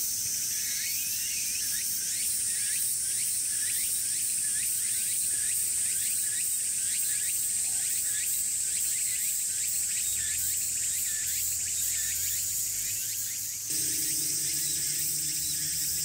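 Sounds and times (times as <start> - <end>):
cicadas droning: 1.2 - 16.0
repeating insect call: 13.7 - 16.0.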